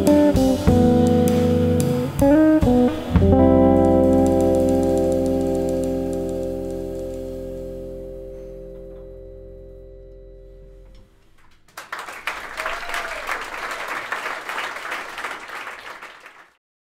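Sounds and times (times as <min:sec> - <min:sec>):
jazz guitar chord ringing: 0:00.0 - 0:11.1
audience clapping: 0:11.4 - 0:16.6.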